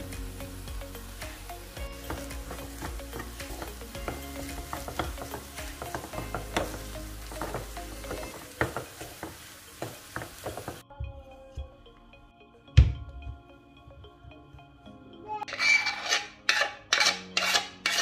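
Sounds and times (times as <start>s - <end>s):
pan sizzling: 0.0s - 10.8s
wooden spoon scraping a pan: 1.9s - 10.8s, 15.5s - 18.0s
spoon knocking against pan: 2.0s - 10.8s.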